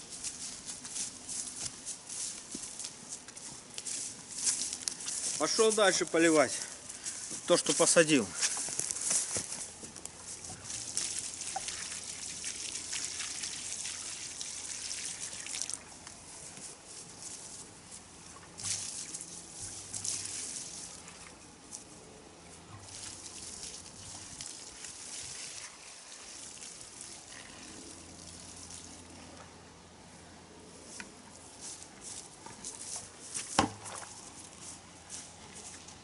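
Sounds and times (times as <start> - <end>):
water pouring onto soil: 3.8 - 16.4, 18.5 - 21.9, 22.8 - 29.2.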